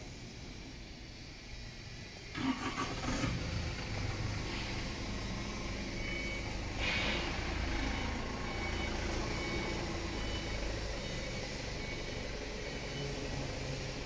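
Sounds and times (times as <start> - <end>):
truck engine rumbling: 2.3 - 14.0
reversing alarm beeps: 3.9 - 14.0
brief hiss: 6.7 - 7.6.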